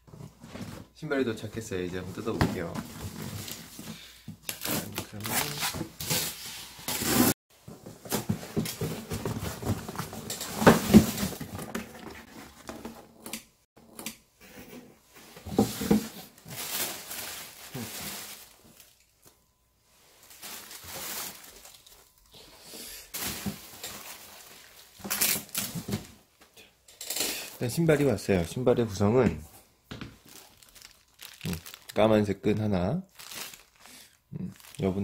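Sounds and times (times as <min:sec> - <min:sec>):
cardboard and paper rustling: 0:02.2 - 0:13.0, 0:15.2 - 0:19.0, 0:20.1 - 0:22.2, 0:30.0 - 0:32.1, 0:33.2 - 0:35.0.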